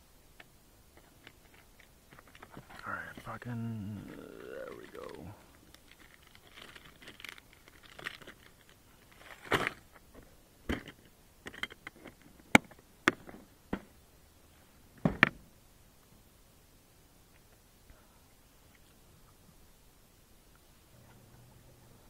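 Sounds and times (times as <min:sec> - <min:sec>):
plastic package crinkling: 0:04.0 - 0:09.8.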